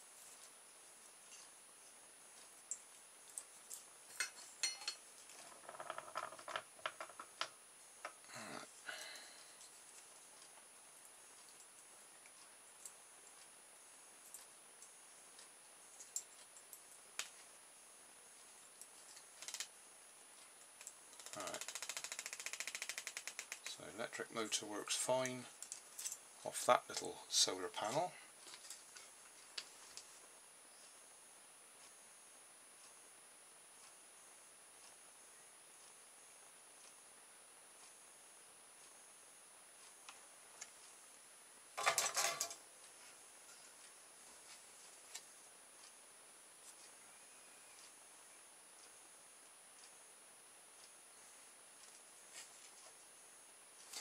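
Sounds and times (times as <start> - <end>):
faint steady high whine: 0.0 - 54.0
faint clicks: 18.8 - 19.7, 20.4 - 23.8
rapid even ticking: 18.8 - 23.8.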